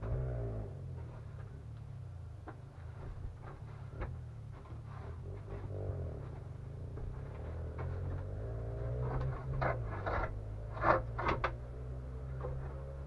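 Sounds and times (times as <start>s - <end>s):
steady low hum: 0.0s - 13.0s
hollow wooden knocks: 2.3s - 13.0s
wooden bed frame scraping: 2.6s - 13.0s.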